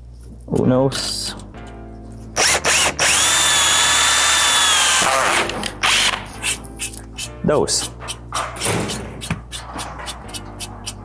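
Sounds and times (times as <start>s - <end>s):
cordless drill whining: 2.4s - 6.2s.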